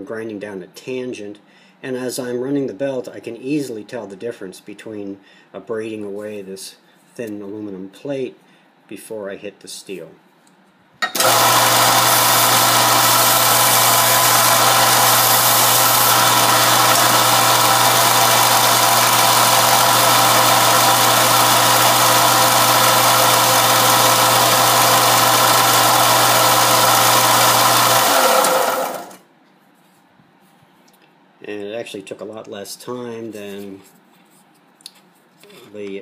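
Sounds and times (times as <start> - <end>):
belt sander grinding metal: 11.0 - 29.2
motor spinning down: 11.2 - 29.2.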